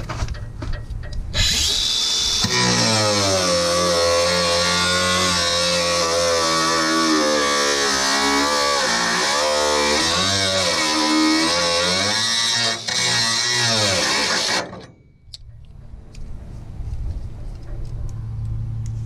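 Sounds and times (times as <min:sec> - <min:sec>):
angle grinder cutting sheet steel: 0:01.3 - 0:15.0.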